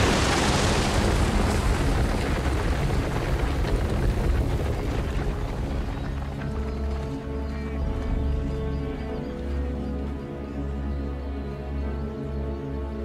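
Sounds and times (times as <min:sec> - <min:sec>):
herd of hooves stampeding: 0:00.0 - 0:09.6.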